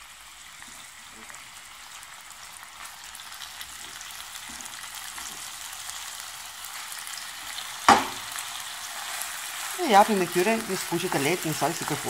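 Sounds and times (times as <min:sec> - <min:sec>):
chicken sizzling in hot oil: 0:00.0 - 0:12.0
sharp knock: 0:07.9 - 0:08.2.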